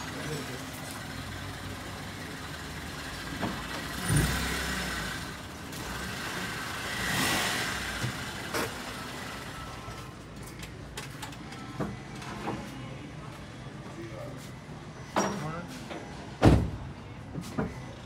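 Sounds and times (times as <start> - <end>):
vehicle engine running: 0.0 - 10.2
thump: 16.4 - 16.8.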